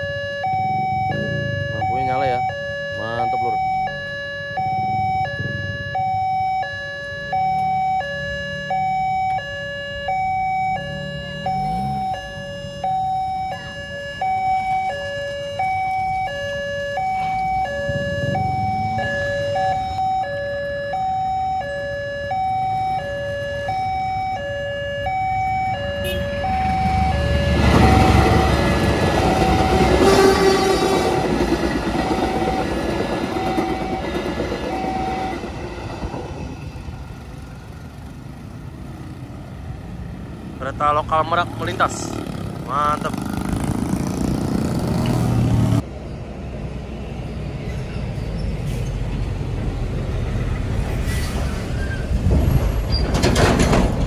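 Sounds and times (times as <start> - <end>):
two-tone crossing warning siren: 0.0 - 45.8
passing train rumble: 24.6 - 54.0.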